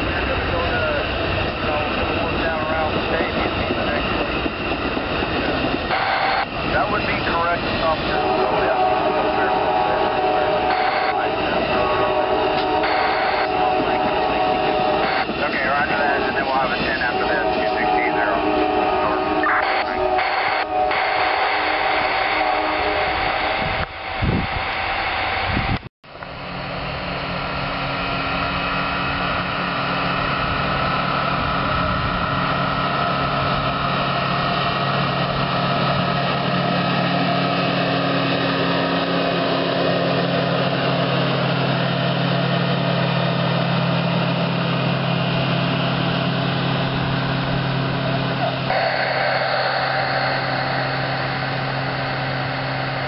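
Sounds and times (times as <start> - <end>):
machine engine humming: 26.3 - 53.0.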